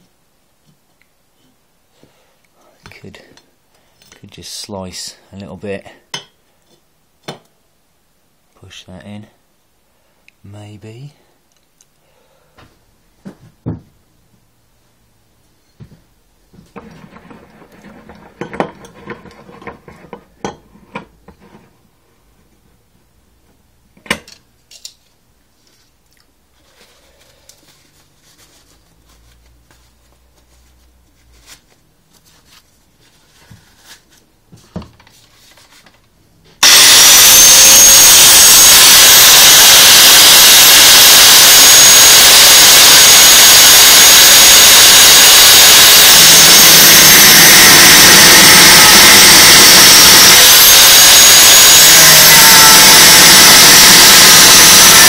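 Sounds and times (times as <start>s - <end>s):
angle grinder grinding metal: 36.6s - 55.0s.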